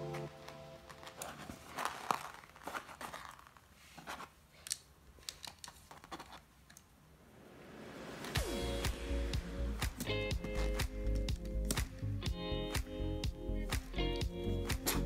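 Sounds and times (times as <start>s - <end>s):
plastic parts clicking together: 4.6s - 6.9s.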